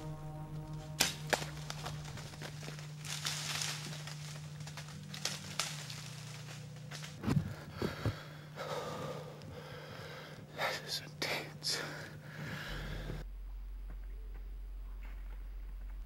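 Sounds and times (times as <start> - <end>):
rustling: 0.0 - 8.3
steady low hum: 0.0 - 16.0
person breathing hard: 7.3 - 10.9, 11.7 - 13.3.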